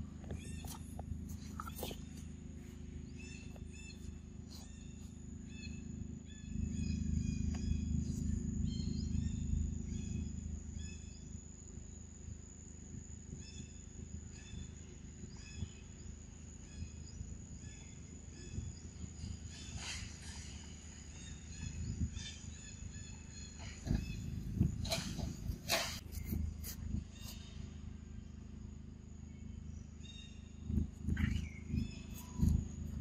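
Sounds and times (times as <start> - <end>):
steady high drone: 0.0 - 12.2
low rumble: 0.0 - 13.4, 16.4 - 33.0.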